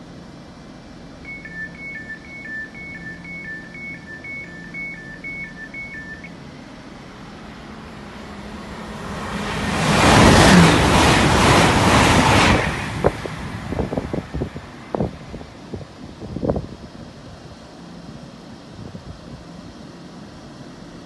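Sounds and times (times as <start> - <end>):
train approaching at speed: 0.0 - 21.0
train humming: 0.0 - 21.0
two-tone warning beeps: 1.2 - 6.4.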